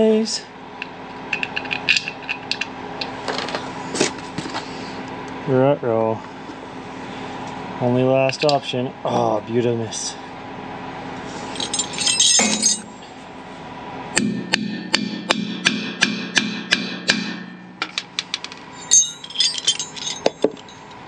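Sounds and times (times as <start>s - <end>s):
tool clinks: 11.5s - 13.0s, 17.8s - 21.0s
hammer tapping metal: 14.2s - 20.8s.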